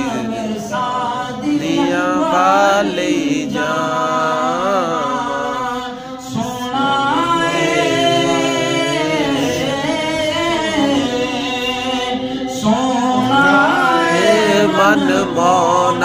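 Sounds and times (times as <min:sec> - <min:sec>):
man singing unaccompanied: 0:00.0 - 0:16.0
singer breath: 0:05.9 - 0:06.3.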